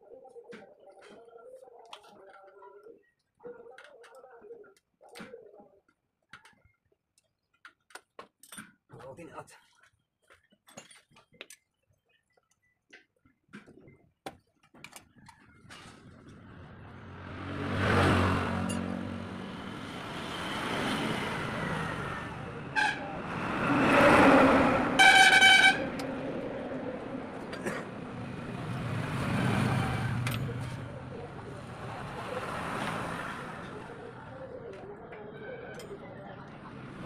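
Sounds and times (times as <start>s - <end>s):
road traffic passing: 15.7s - 37.0s
car horn: 21.8s - 26.3s.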